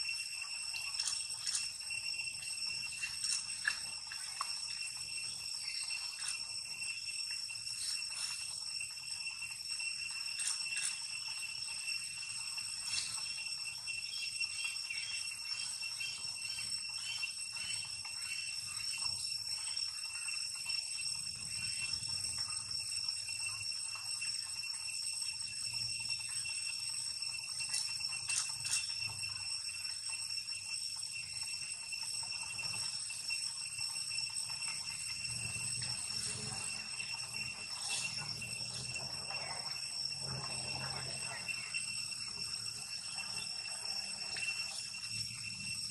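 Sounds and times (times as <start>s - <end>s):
high-pitched whine: 0.0s - 45.9s.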